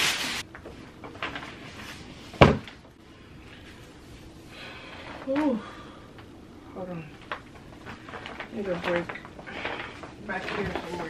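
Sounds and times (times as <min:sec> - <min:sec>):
plastic packaging crinkling: 0:00.0 - 0:01.9, 0:07.1 - 0:11.0.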